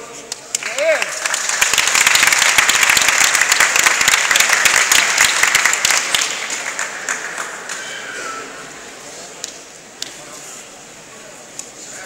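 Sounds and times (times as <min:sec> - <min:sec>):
crowd applauding: 0:00.5 - 0:09.6.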